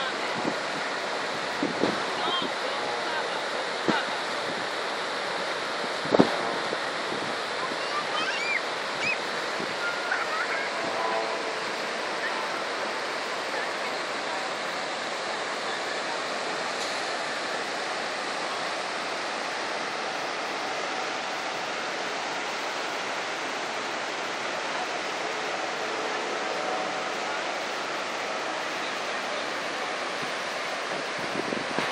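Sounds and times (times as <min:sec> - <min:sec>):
rushing turbulent water: 0:00.0 - 0:31.9.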